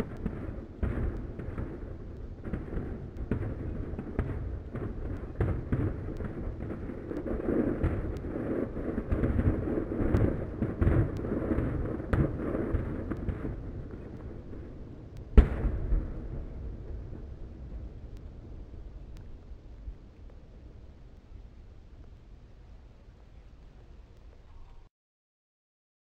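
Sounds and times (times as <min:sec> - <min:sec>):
firework shells booming: 0:00.0 - 0:14.7, 0:15.3 - 0:17.4
sharp firework cracks: 0:00.0 - 0:19.4.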